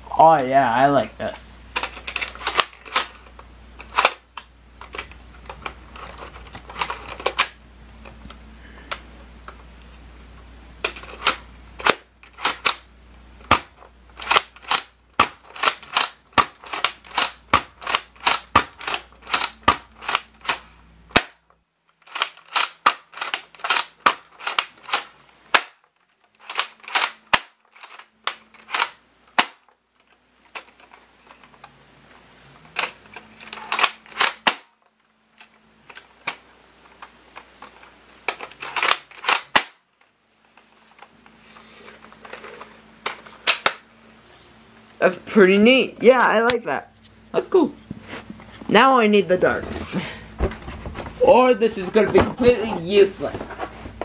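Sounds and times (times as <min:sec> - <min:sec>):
toy blaster plastic clicks: 0:13.5 - 0:21.5, 0:22.1 - 0:29.7, 0:32.8 - 0:34.8, 0:38.3 - 0:39.8.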